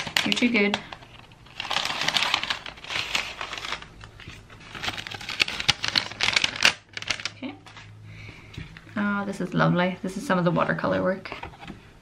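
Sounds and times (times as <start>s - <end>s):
paper packaging crinkling: 0.0s - 7.9s.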